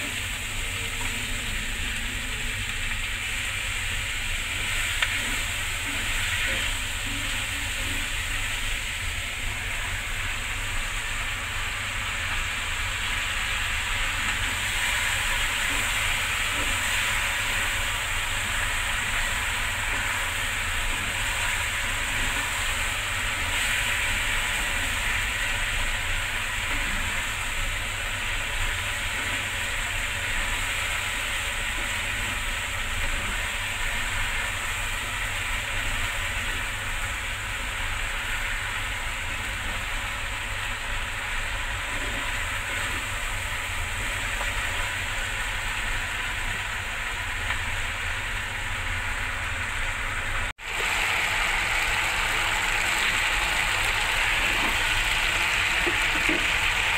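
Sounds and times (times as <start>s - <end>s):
food sizzling in oil: 0.0s - 56.9s.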